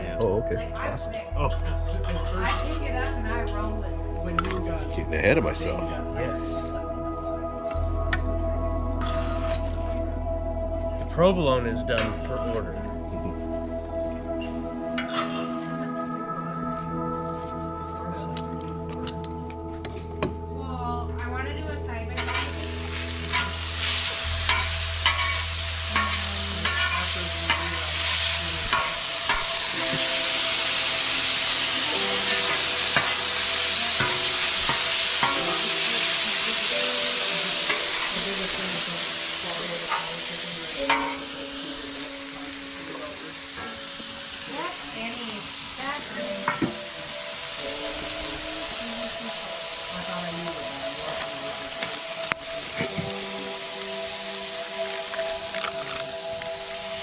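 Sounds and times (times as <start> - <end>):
steak sizzling on a griddle: 9.0 - 10.1, 22.1 - 57.0
metal spatulas scraping on steel: 22.2 - 22.6.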